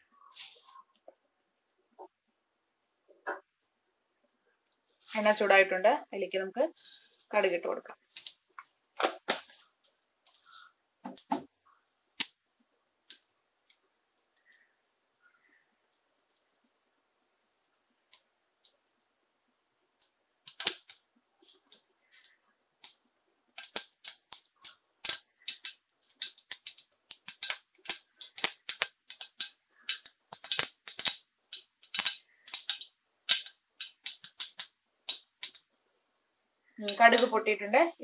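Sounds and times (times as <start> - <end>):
mustard seeds popping in hot oil: 6.7 - 9.7, 10.4 - 12.4, 20.0 - 35.7, 36.8 - 37.4.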